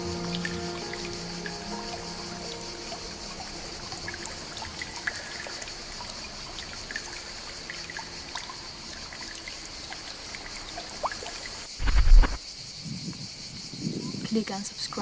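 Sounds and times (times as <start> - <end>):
small drip-like splashes: 0.0 - 11.7
water trickling and lapping: 0.0 - 11.8.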